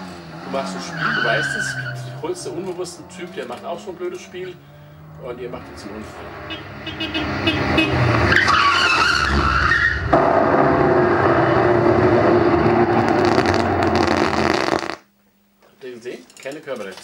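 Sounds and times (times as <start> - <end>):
tyres screeching: 0.5 - 10.2
loud crash: 8.0 - 14.6.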